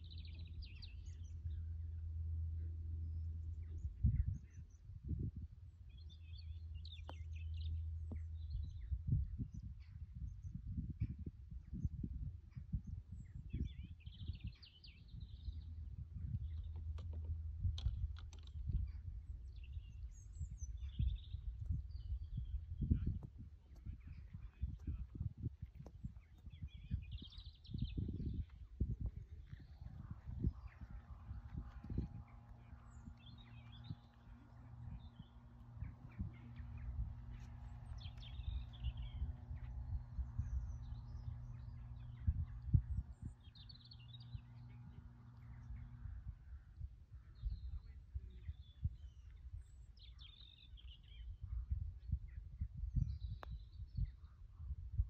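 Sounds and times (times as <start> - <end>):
wind buffeting microphone: 0.0 - 55.0
small bird chirping: 12.8 - 51.7.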